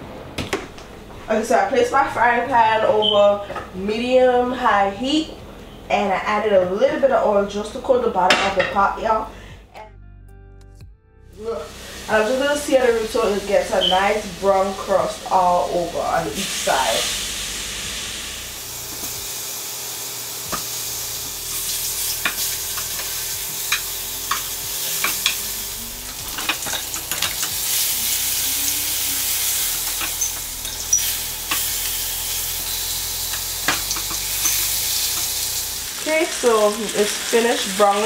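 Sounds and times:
meat sizzling in a frying pan: 11.6s - 38.0s.

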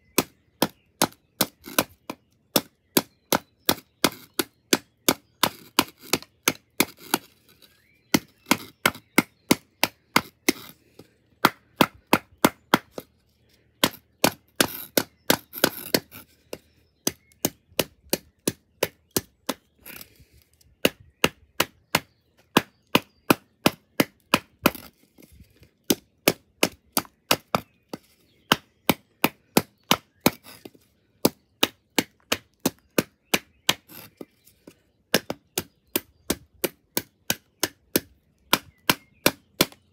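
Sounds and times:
rough wood crunch: 0.0s - 39.9s
knife striking hard wood: 13.8s - 20.0s.

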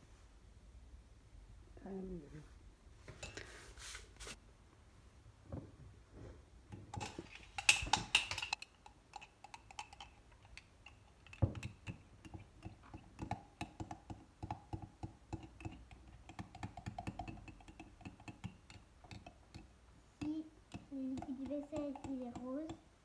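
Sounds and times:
spoon stirring in ceramic mug: 6.7s - 22.9s.

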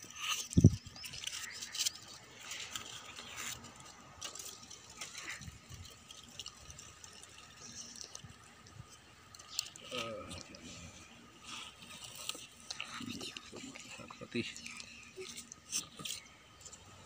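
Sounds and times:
rustles and light scrapes: 0.0s - 17.0s.

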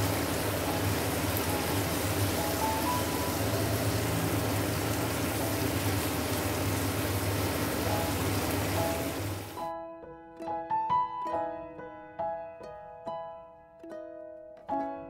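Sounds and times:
food sizzling in a wok: 0.0s - 9.6s.

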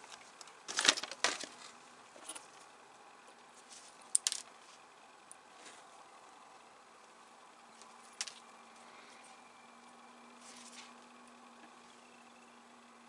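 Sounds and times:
small clicks of plastic parts: 4.1s - 4.5s.

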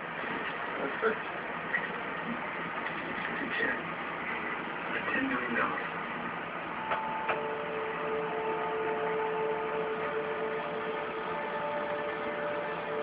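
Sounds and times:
chord of electronic tones: 6.8s - 13.0s.

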